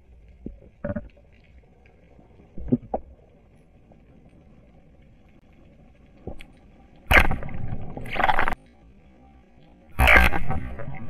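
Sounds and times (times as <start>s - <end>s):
faint click: 5.0s - 7.2s.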